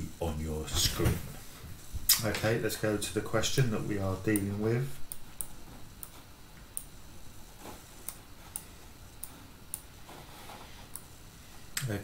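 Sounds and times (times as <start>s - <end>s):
computer controls clicking: 4.3s - 4.5s.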